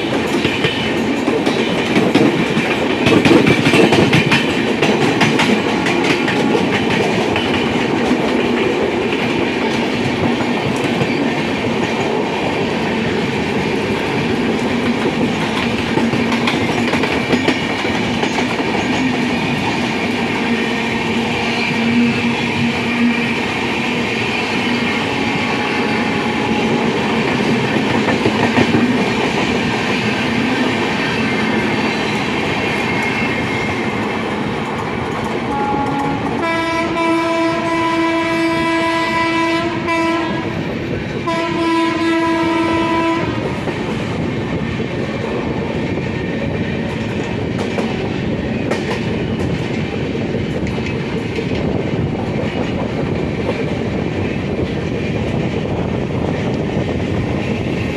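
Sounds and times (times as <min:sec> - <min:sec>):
moving train running noise: 0:00.0 - 0:57.9
train passing: 0:00.0 - 0:57.9
multi-tone locomotive horn: 0:20.4 - 0:27.0, 0:35.5 - 0:43.6.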